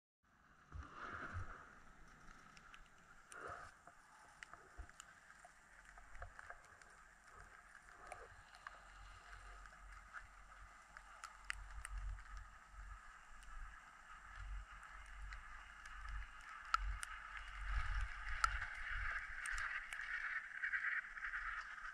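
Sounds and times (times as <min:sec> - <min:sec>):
faint steady hiss: 0:00.4 - 0:21.9
small clicks: 0:02.0 - 0:21.9.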